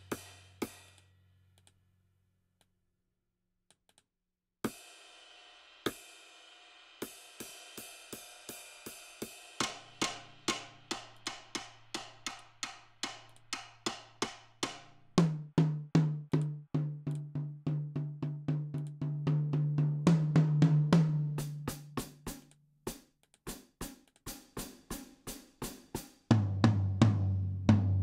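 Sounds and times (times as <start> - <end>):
cymbal and drum hits: 0.0 - 1.0, 6.9 - 12.4.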